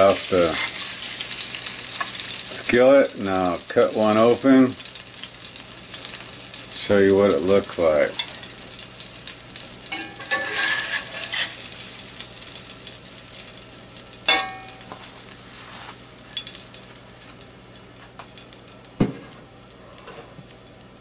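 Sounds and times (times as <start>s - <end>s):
oil sizzling in a skillet: 0.0s - 21.0s
ringing metal clank: 14.3s - 14.9s.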